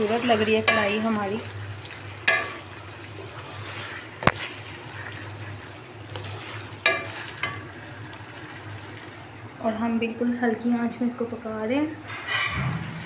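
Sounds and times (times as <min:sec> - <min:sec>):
stew bubbling in a pot: 0:00.0 - 0:09.6
sharp knock: 0:12.5 - 0:13.0.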